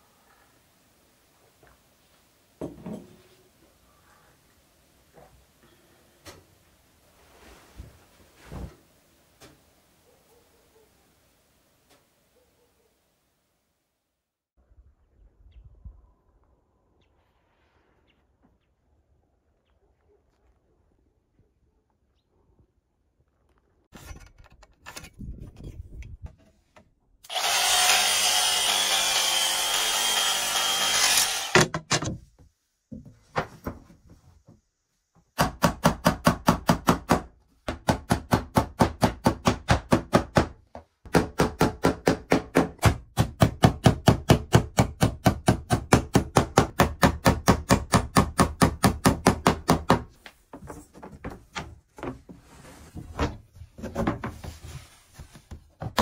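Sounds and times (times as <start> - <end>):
power saw cutting wood: 27.3 - 31.7.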